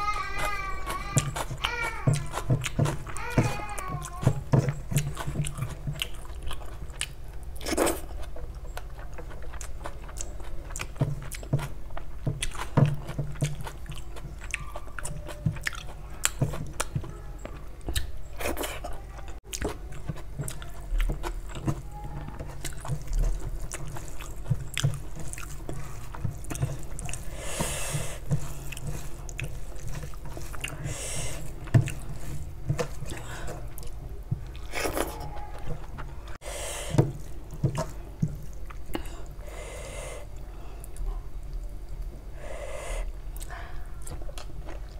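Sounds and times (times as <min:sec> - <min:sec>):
person chewing food: 0:00.0 - 0:44.9
fingers mixing rice in steel plate: 0:19.6 - 0:36.2.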